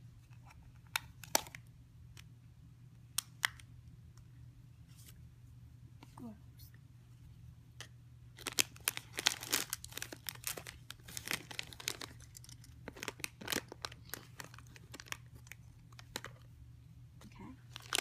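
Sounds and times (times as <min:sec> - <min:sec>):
plastic and foil wrappers crinkling: 0:08.4 - 0:16.5, 0:17.7 - 0:18.0.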